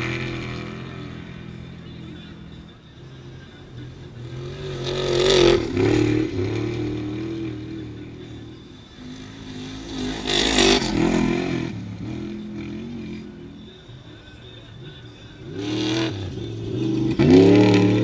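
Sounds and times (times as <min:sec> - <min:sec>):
race vehicles speeding past: 0:03.8 - 0:13.4, 0:15.4 - 0:18.0.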